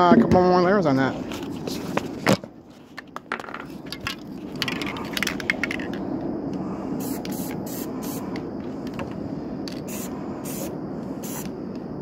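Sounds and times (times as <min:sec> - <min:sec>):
spray can hissing: 0:07.0 - 0:08.2, 0:09.9 - 0:11.5.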